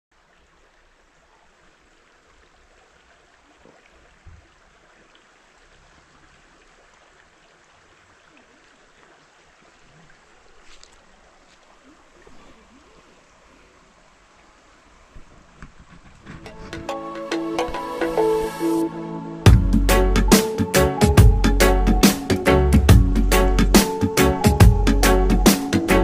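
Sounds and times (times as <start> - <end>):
stream trickling over rocks: 0.1 - 17.1.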